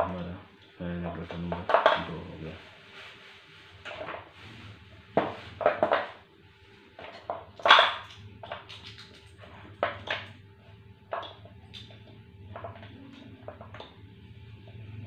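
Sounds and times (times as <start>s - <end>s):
plastic parts knocking on wooden table: 5.2s - 6.2s.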